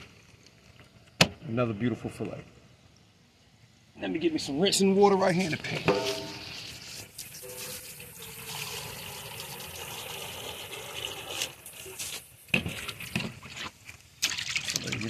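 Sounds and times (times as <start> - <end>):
water pouring into metal pan: 5.8 - 13.1, 14.2 - 15.0.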